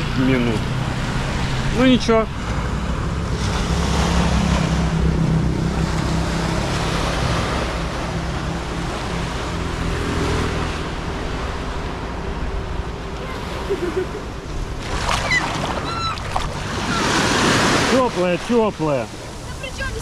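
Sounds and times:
small waves washing onto sand: 13.2s - 20.0s.

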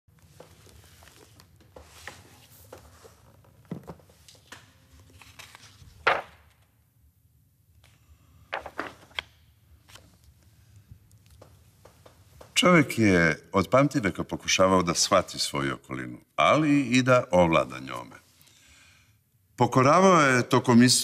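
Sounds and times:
book pages turning: 0.2s - 6.7s, 7.8s - 12.2s.

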